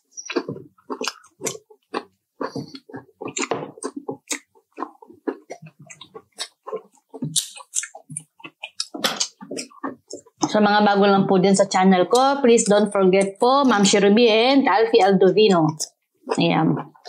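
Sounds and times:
chewing crispy fried chicken: 0:00.2 - 0:10.5.

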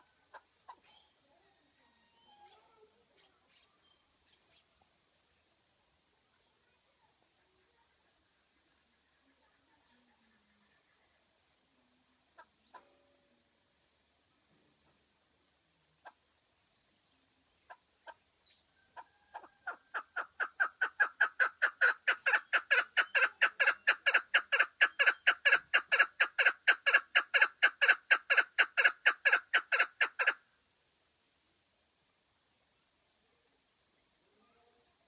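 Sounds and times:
partridge clucking call: 0:00.0 - 0:01.0, 0:19.0 - 0:30.4.

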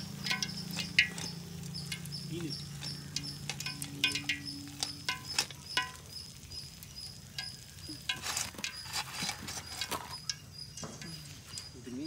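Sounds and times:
fried fish clattering onto leaf: 0:00.1 - 0:06.1, 0:07.3 - 0:11.1
metal ladle clicks and taps: 0:00.1 - 0:08.8.

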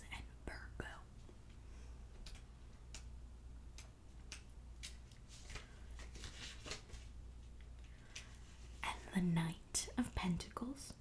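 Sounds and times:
steady low hum: 0:00.0 - 0:11.0
paper and cards rustling: 0:04.3 - 0:09.2.

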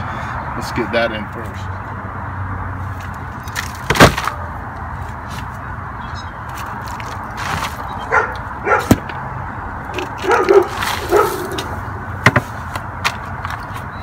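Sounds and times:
dog barking: 0:08.1 - 0:09.0, 0:10.2 - 0:11.6.

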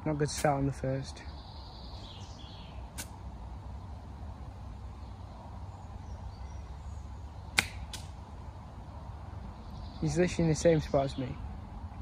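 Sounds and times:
sharp click: 0:07.6 - 0:08.2.

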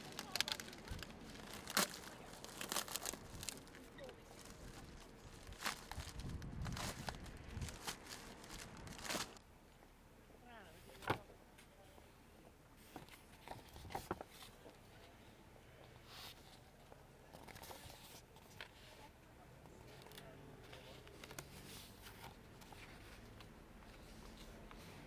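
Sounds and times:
paper rustling: 0:00.0 - 0:09.4.

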